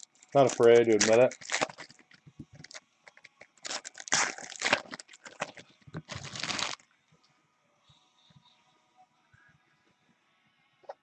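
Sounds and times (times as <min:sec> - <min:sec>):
foil wrapper tearing and crinkling: 0:00.0 - 0:06.8.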